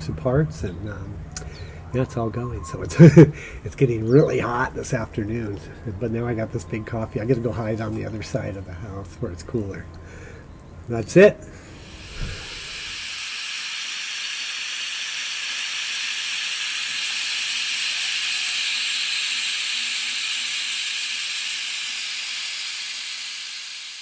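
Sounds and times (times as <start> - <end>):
steady hiss: 11.6 - 24.0.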